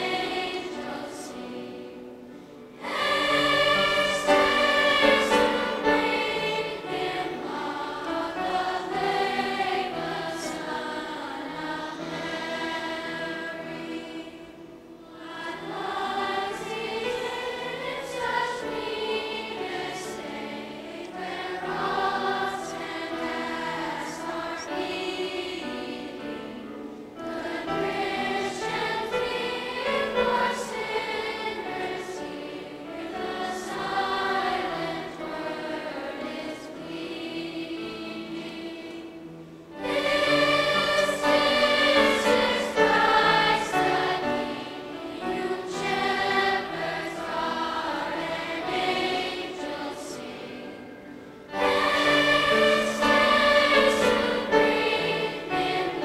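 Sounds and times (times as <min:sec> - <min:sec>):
children's choir singing: 0:00.0 - 0:56.0.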